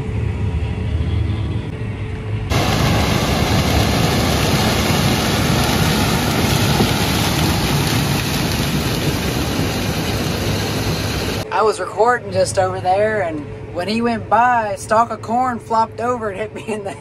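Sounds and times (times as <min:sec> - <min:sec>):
combine harvester machine noise: 0:02.5 - 0:11.4.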